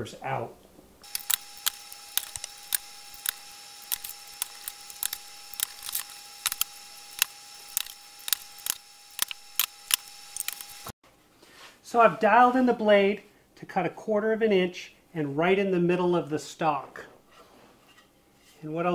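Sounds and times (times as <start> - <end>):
sharp irregular clicks: 1.0 - 10.9.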